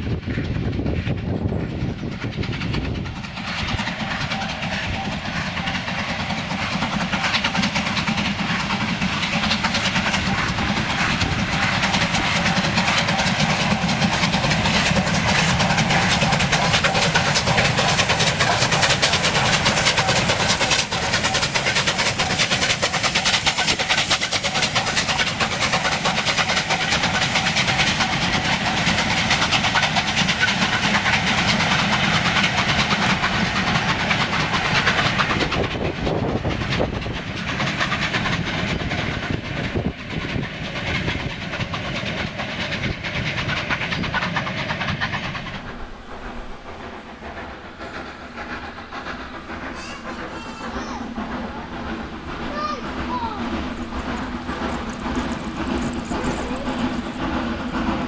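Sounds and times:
steam locomotive exhaust beat: 0.0s - 58.0s
wagon wheels clattering over rail joints: 49.8s - 58.0s.

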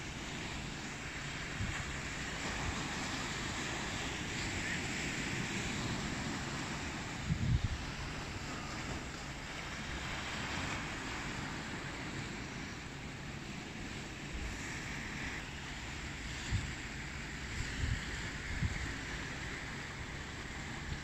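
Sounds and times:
sea wash: 0.0s - 21.0s
steady wind: 0.0s - 21.0s
wind buffeting microphone: 1.5s - 12.0s.

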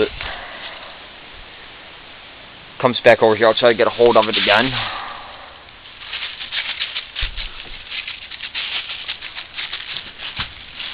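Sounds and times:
dry leaves crackling underfoot: 3.0s - 10.9s.

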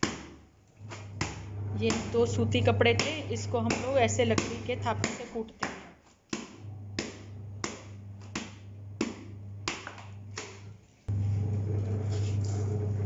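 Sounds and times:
low hum: 1.1s - 5.0s, 6.6s - 10.3s.

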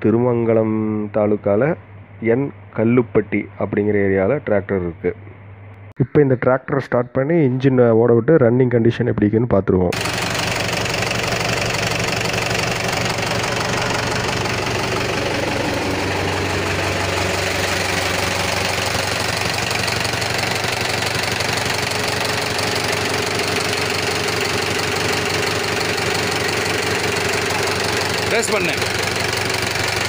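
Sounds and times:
tractor diesel engine idling: 10.0s - 30.0s.

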